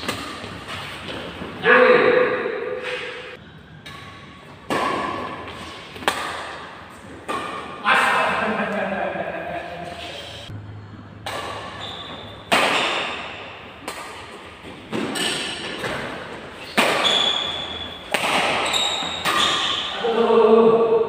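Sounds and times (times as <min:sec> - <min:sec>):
rackets striking shuttlecock: 0:02.9 - 0:07.8, 0:11.2 - 0:19.9.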